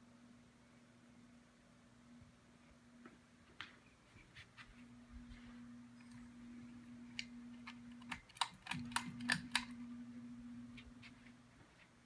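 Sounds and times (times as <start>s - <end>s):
ceiling fan motor humming: 0.0s - 12.0s
sharp clicks: 7.1s - 9.8s.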